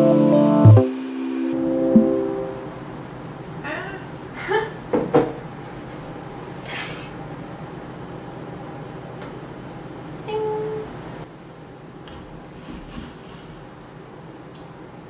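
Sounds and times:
short tone: 0.0 - 2.8.

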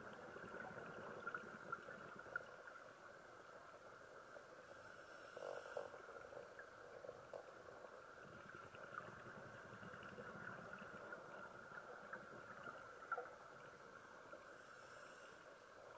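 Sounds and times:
underwater hiss: 4.1 - 6.5, 12.6 - 15.9.

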